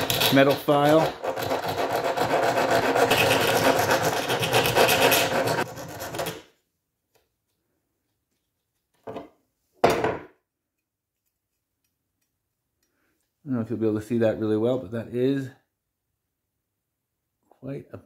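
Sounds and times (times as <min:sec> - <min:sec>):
metal file rasping on steel: 0:00.0 - 0:06.3.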